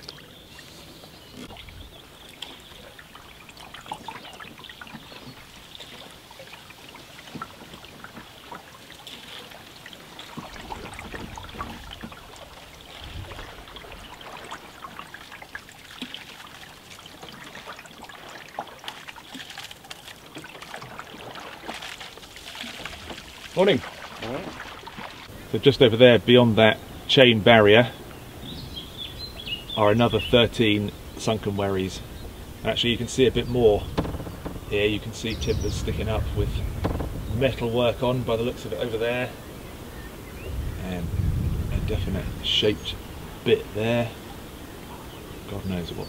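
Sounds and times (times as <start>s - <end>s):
water dripping off paddle: 0.0s - 25.4s, 29.7s - 39.2s
paddle splashes: 0.0s - 46.0s
low thumps against hull: 31.2s - 38.7s.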